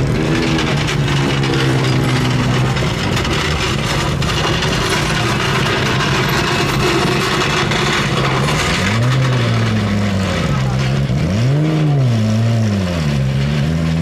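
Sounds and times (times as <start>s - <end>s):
mechanical din: 0.0s - 9.9s
tool clatter: 0.0s - 11.2s
car engine running: 0.0s - 14.0s.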